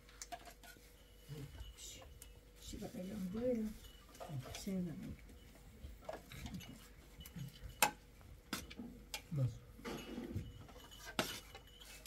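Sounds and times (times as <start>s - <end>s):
dishes and utensils clinking: 3.5s - 12.0s.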